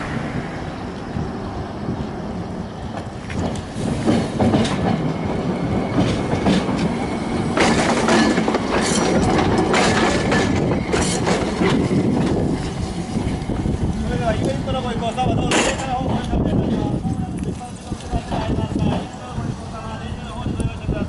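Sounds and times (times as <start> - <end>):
streetcar rumbling past: 0.0 - 17.3
wheels clacking over rail joints: 2.8 - 19.2.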